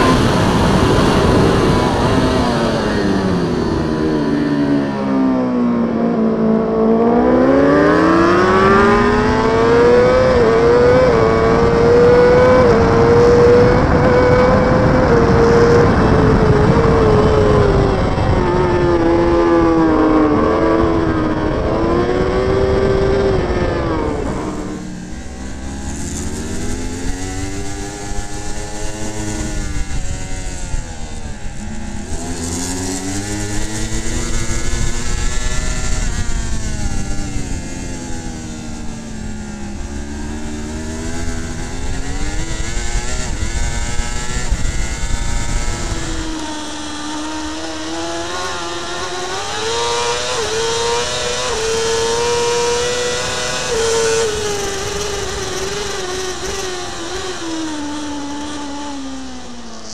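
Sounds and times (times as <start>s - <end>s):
wind rush: 0.0s - 6.3s, 7.4s - 59.4s
racing motorcycle engine: 0.0s - 59.9s.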